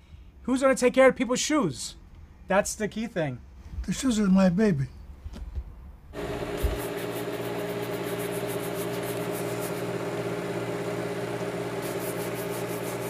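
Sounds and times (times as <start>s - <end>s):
electric motor humming: 6.2s - 13.0s.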